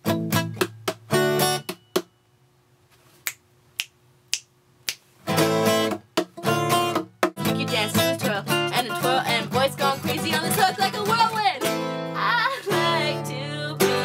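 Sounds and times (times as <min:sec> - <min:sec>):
strummed acoustic guitar and ukulele: 0:00.0 - 0:02.1, 0:05.3 - 0:14.0.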